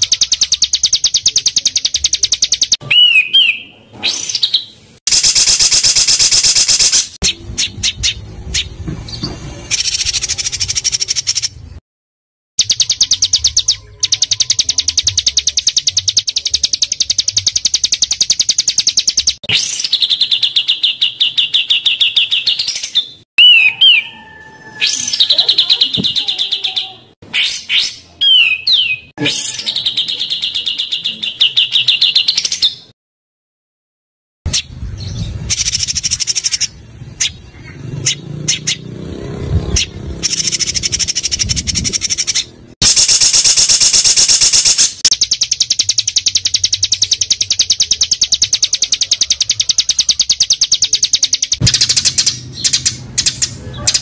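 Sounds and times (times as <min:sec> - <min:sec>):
bird chirps and whistles: 0:00.0 - 0:08.7, 0:12.6 - 0:26.5, 0:27.3 - 0:32.8, 0:40.3 - 0:54.0.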